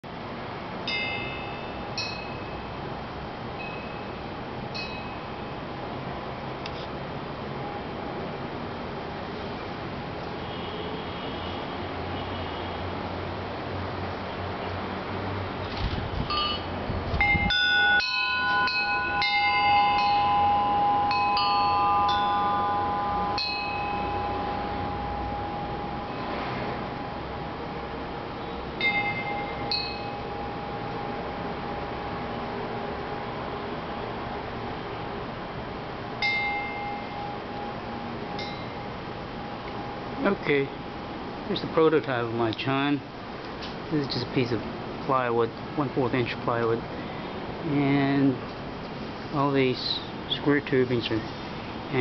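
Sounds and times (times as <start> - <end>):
metal wind chime ringing: 0.8 - 2.8, 3.6 - 5.6, 16.3 - 32.2, 36.2 - 40.8.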